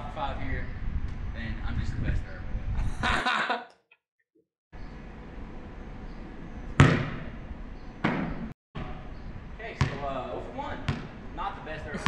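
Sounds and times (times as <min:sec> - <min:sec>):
basketball bouncing on concrete: 0:06.8 - 0:07.2, 0:09.8 - 0:10.0, 0:10.9 - 0:11.1.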